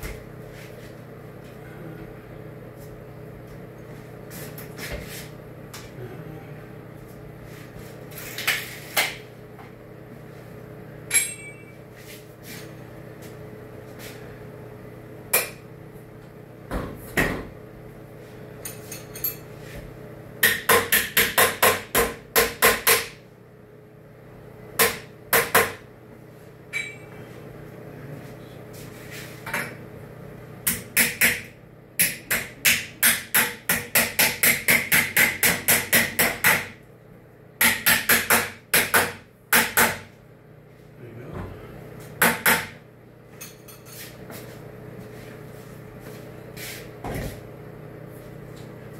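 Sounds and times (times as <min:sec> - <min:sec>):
steady low hum: 0:00.0 - 0:48.9
hammer striking metal: 0:11.1 - 0:11.7.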